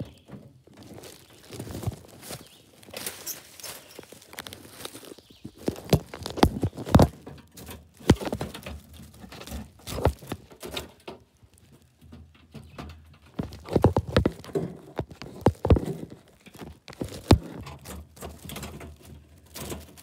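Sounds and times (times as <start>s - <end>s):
squirrel scrambling in wire trap: 0.8s - 11.0s.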